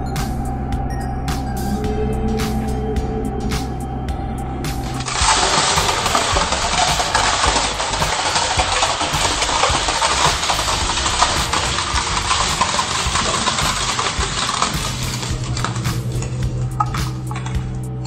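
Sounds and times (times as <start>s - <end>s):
hydraulic pump drone: 1.8s - 18.0s
plastic crackling and snapping: 4.8s - 17.6s.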